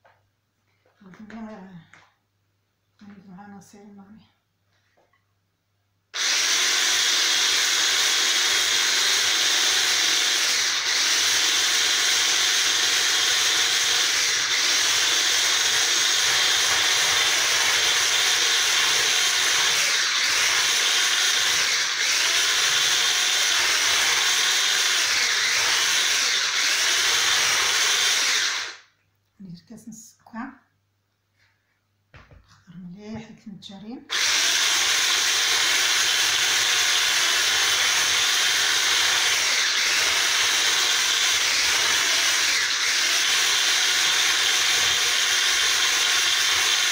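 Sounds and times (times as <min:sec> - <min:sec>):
electric hand mixer whisking: 0:06.2 - 0:28.8, 0:34.1 - 0:46.9.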